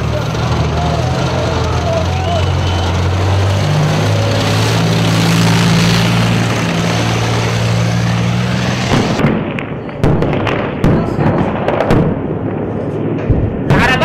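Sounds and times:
tracked vehicle engine and tracks: 0.0 - 14.0.

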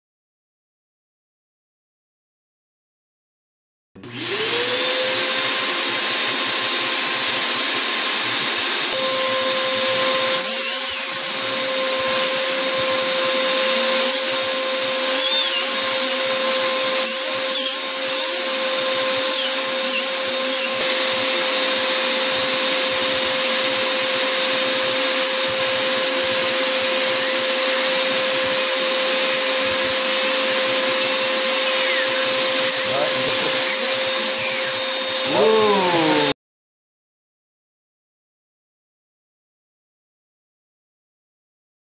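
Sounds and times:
vacuum cleaner whining: 4.0 - 36.4.

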